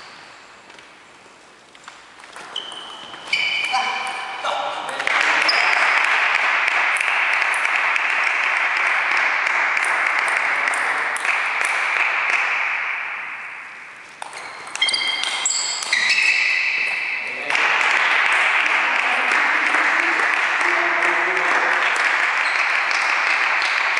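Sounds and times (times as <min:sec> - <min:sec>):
ball pinging off paddles: 0:01.9 - 0:23.9
table tennis ball clicking: 0:14.2 - 0:16.1
audience applause: 0:17.4 - 0:23.9.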